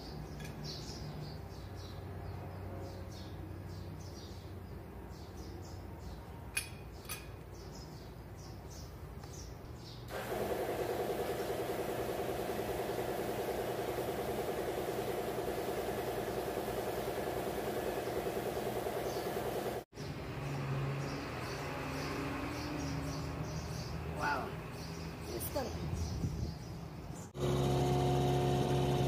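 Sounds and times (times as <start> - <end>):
machine running with even pulsing: 10.1 - 19.9, 27.4 - 29.0.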